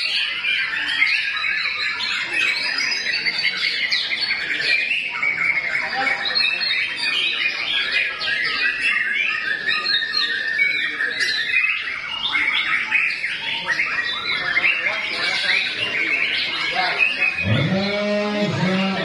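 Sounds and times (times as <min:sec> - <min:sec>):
birds singing in chorus: 0:00.0 - 0:19.0.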